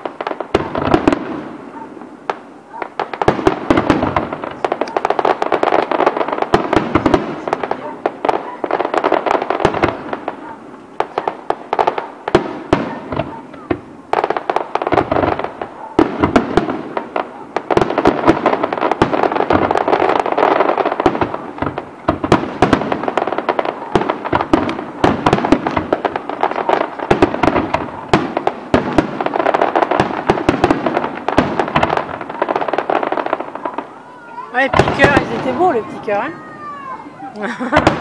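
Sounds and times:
fireworks bursting and crackling: 0:00.0 - 0:38.0.

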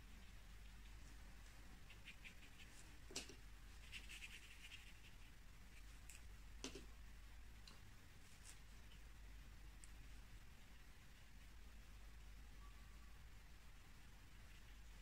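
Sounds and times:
brush scratching on paper: 0:01.8 - 0:03.0, 0:03.7 - 0:06.0.

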